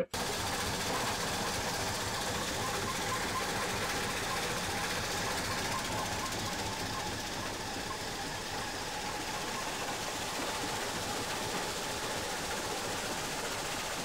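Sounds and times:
faint mechanical whine: 0.0s - 14.0s
rock crusher running: 0.0s - 14.0s.

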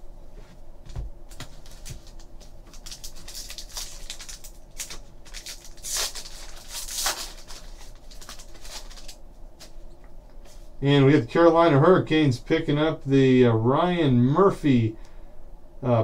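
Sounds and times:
trading cards rustling and clicking: 1.3s - 9.8s
foil wrapper crinkling: 1.3s - 9.9s.

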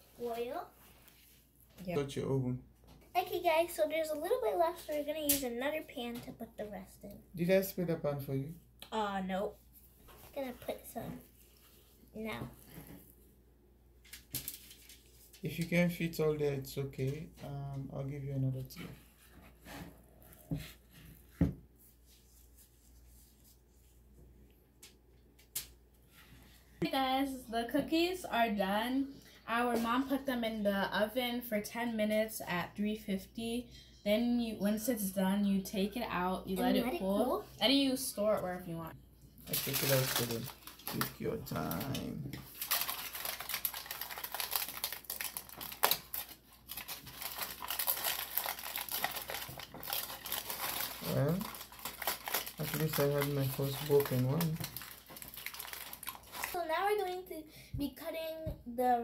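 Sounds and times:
aluminium foil crinkling: 14.0s - 15.5s, 39.4s - 57.2s.

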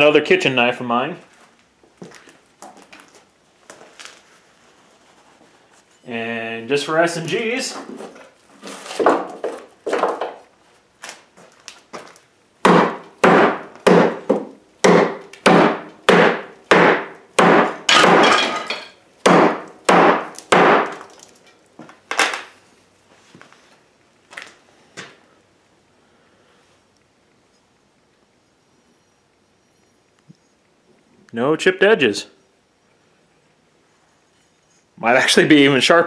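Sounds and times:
knife chopping into wood: 12.7s - 18.4s, 19.3s - 21.0s.

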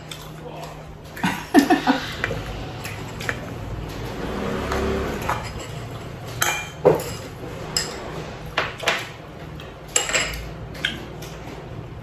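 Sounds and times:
spoon and chopsticks clinking on plates: 5.0s - 11.4s.

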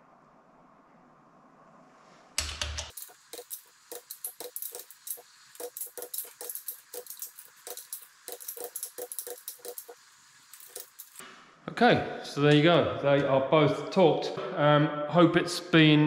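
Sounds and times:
torque wrench clicking: 2.4s - 11.2s.

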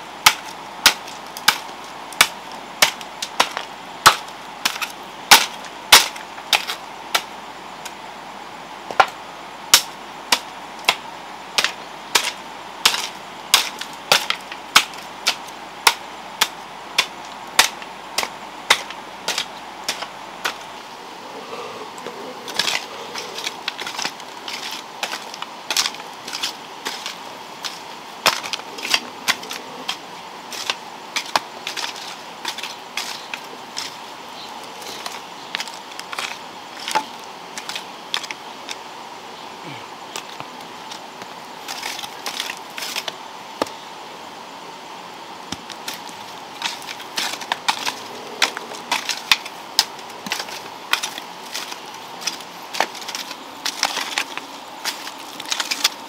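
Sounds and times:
hand hoe chopping into soil: 11.6s - 20.6s, 22.5s - 33.2s, 45.5s - 56.0s.

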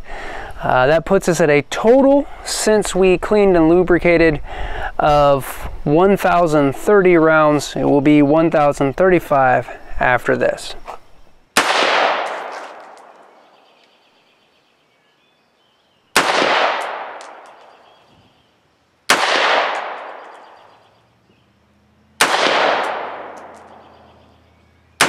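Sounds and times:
rifle shots echoing: 11.6s - 13.6s, 16.2s - 17.9s, 19.1s - 20.8s, 22.2s - 24.2s.

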